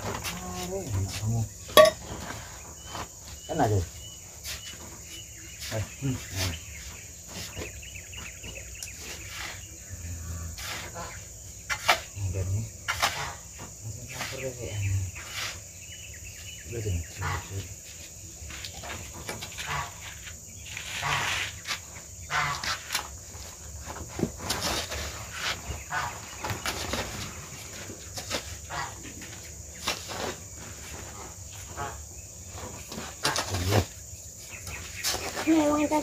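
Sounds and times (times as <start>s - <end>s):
hand tools scraping and knocking: 0.0s - 3.1s.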